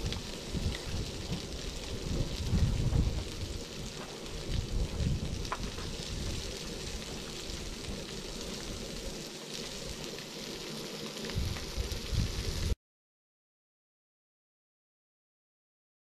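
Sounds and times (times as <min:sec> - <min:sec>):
wind gusts on microphone: 0:00.0 - 0:06.6, 0:11.3 - 0:12.8
twigs crackling in a stove: 0:00.0 - 0:12.8.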